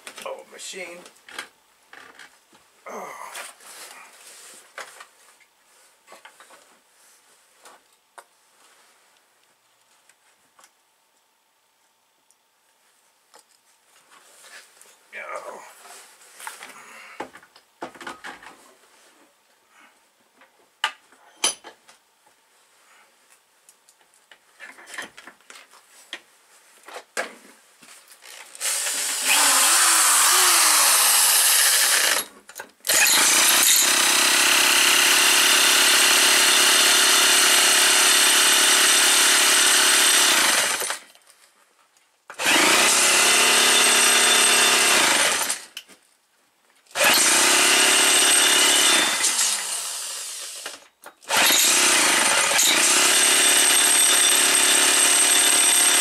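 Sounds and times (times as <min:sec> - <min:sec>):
electric drill running: 0:28.3 - 0:32.3, 0:32.9 - 0:41.0, 0:42.4 - 0:45.7, 0:47.0 - 0:56.0.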